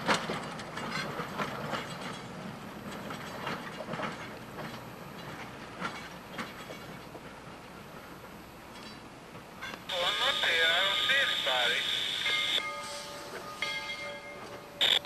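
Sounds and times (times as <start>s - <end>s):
wheels clicking over rail joints: 0.0s - 9.9s
train rolling on track: 0.0s - 15.0s.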